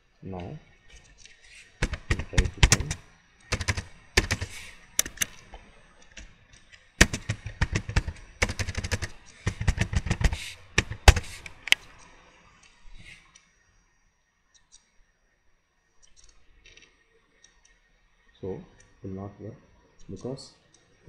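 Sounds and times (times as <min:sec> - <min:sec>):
typing on computer keyboard: 0:01.8 - 0:05.4, 0:07.0 - 0:11.8.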